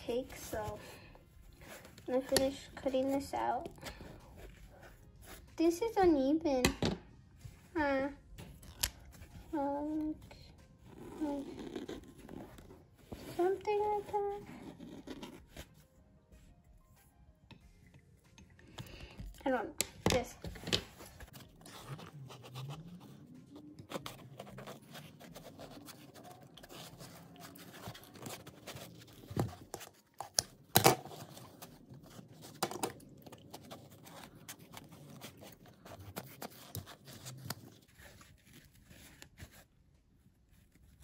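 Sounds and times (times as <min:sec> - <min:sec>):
foam rubbing and rustling: 0:20.8 - 0:30.2, 0:31.1 - 0:41.0.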